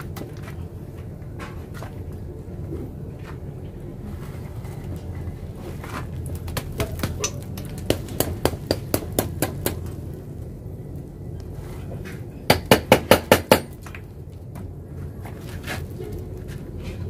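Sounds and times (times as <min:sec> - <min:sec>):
stone pestle knocking on crust: 0:06.5 - 0:09.9, 0:12.5 - 0:13.8.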